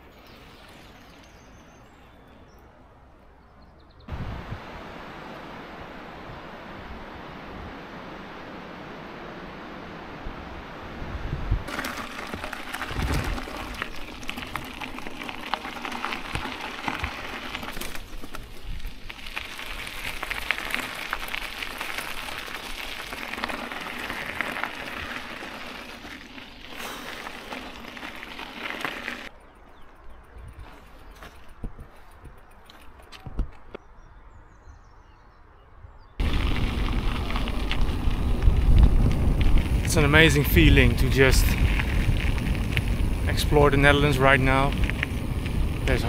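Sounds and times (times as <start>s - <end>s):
bicycle tyres crunching on gravel: 0.0s - 2.4s, 11.6s - 33.8s, 36.2s - 46.0s
wind rushing: 4.1s - 11.7s, 36.2s - 46.0s.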